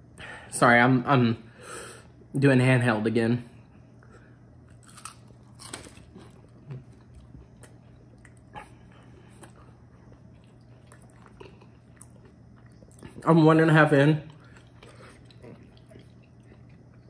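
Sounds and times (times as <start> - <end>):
person chewing crunchy food: 4.6 - 13.3, 14.3 - 17.0.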